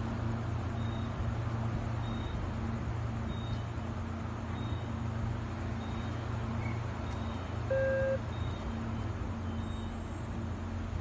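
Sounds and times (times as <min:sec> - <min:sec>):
short beep: 0:07.7 - 0:08.2.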